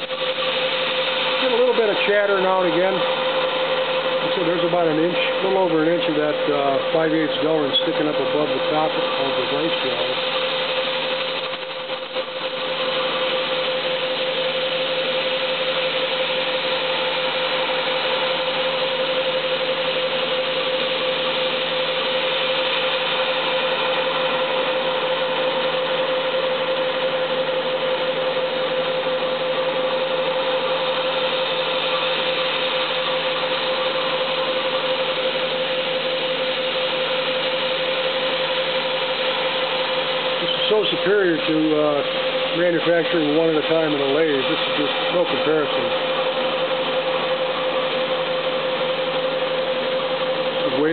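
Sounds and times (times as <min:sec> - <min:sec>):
mill spindle cutting with whine: 0:00.0 - 0:50.9.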